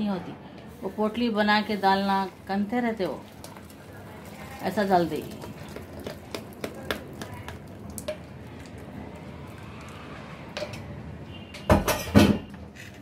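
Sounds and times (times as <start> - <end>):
kitchenware clattering against pot: 11.6 - 12.5.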